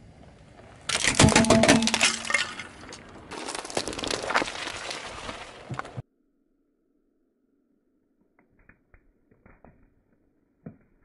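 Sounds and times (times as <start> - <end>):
crackling crunches: 0.9 - 6.0.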